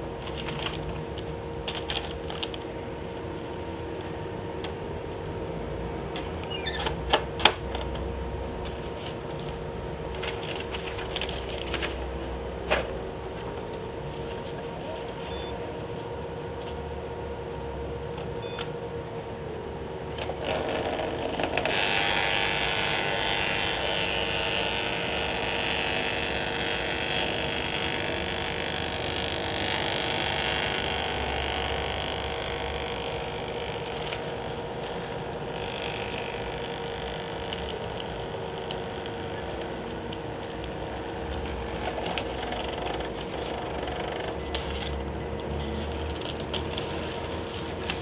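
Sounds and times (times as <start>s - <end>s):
feed motor whirring: 20.2s - 48.0s.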